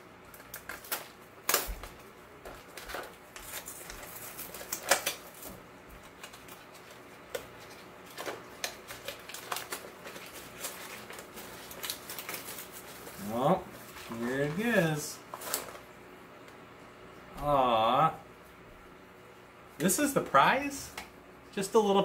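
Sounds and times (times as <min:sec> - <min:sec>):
cardboard box crinkling: 0:06.1 - 0:13.2.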